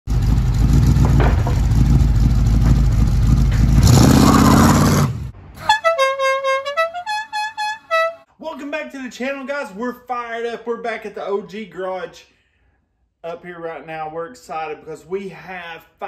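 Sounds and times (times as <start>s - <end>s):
car engine rumbling: 0.1s - 6.0s
horn-like tune: 5.6s - 8.3s.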